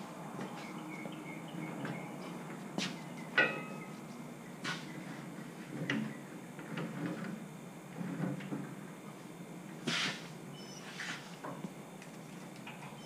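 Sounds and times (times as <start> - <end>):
steel attachment clanking: 3.4 - 3.8.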